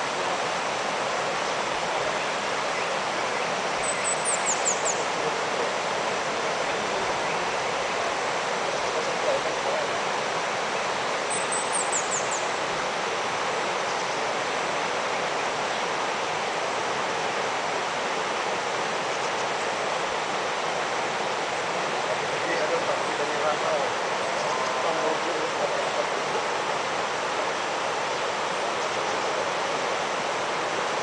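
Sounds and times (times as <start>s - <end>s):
river rapids rushing over rocks: 0.0s - 31.0s.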